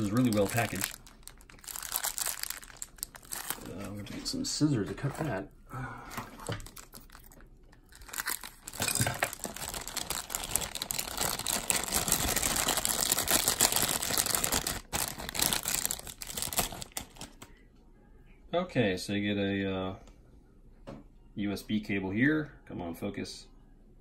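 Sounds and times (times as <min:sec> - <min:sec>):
plastic bag crinkling: 0:00.0 - 0:04.4, 0:06.4 - 0:17.5.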